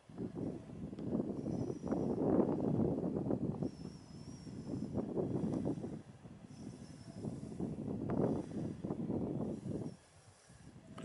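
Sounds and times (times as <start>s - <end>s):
wind buffeting microphone: 0.0s - 11.0s
faint high whistle: 1.3s - 2.2s, 3.6s - 5.0s, 6.5s - 7.7s.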